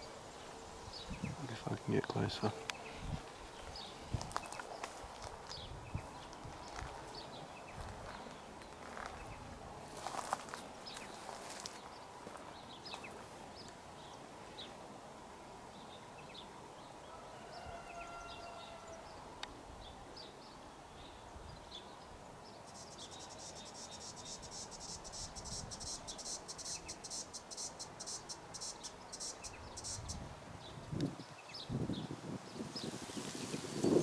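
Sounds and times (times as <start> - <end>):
insect high-pitched pulsing trill: 22.7 - 30.2.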